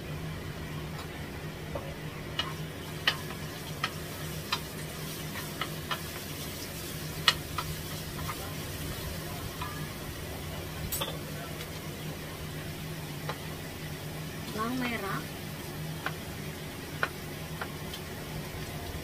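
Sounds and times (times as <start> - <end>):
garlic sizzling in oil: 0.0 - 19.0
utensils knocking on a wok: 1.7 - 4.8, 5.4 - 6.3, 7.1 - 8.6.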